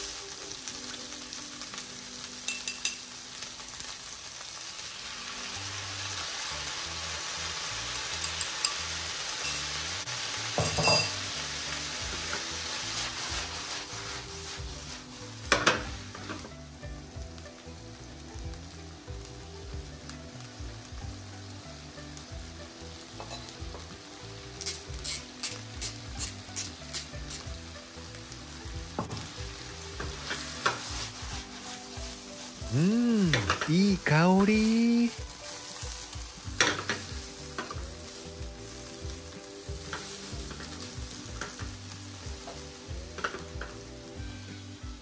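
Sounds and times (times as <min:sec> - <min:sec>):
food sizzling in frying pan: 0:00.0 - 0:45.0
pepper mill grinding: 0:24.6 - 0:27.5.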